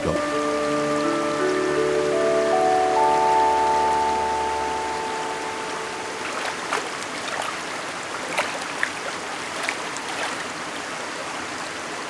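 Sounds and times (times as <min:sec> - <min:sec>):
stream rushing over rocks: 0:00.0 - 0:12.0
water splashes and plops: 0:06.1 - 0:12.0.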